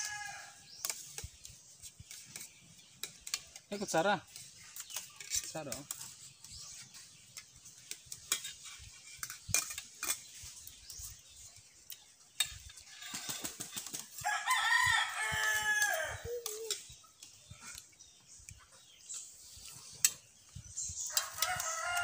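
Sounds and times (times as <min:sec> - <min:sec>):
rooster crowing: 0:00.0 - 0:00.6, 0:14.2 - 0:16.3, 0:21.1 - 0:22.0
spoons clicking against plates: 0:00.8 - 0:10.5, 0:21.1 - 0:22.0.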